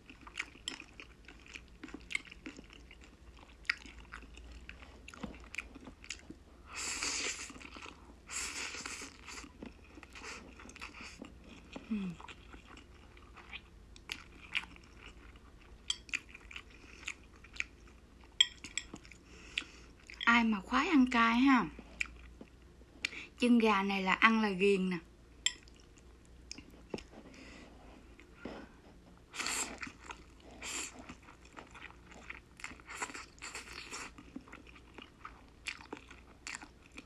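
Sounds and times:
wet chewing: 0.0s - 6.4s, 7.1s - 20.4s, 28.2s - 37.0s.

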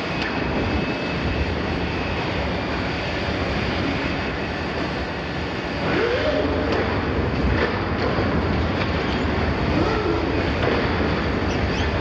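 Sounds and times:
excavator under hydraulic load: 0.0s - 12.0s.

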